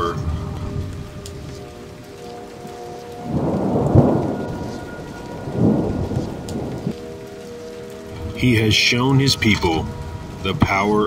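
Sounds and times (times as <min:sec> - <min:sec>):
steady rain: 0:00.0 - 0:11.0
thunder rumbling: 0:00.0 - 0:11.0.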